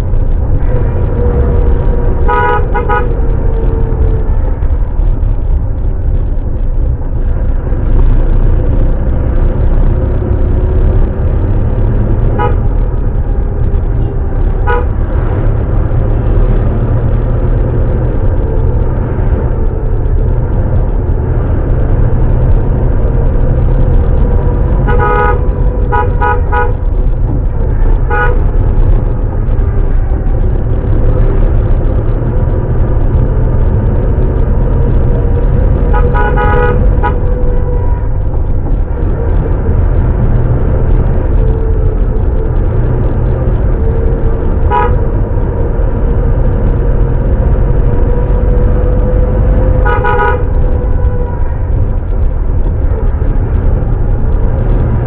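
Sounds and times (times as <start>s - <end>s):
car driving rumble from inside: 0.0s - 55.0s
car horn toots: 0.6s - 4.2s, 12.0s - 13.0s, 13.9s - 15.0s, 24.7s - 26.9s, 27.9s - 28.6s, 35.8s - 38.0s, 44.6s - 45.1s, 49.8s - 51.5s.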